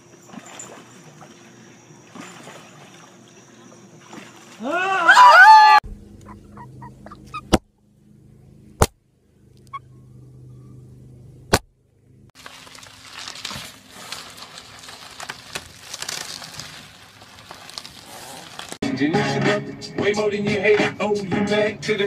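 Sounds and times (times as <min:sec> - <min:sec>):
faint hum: 0:00.0 - 0:12.9
plastic mesh crackling rustle: 0:12.4 - 0:18.8.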